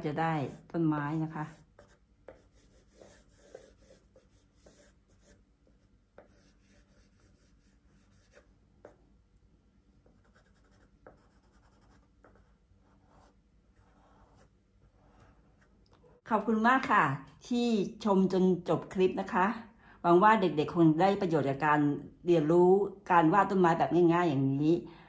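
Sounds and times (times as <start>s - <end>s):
pencil scratching on paper: 0.0s - 9.0s, 9.9s - 15.8s.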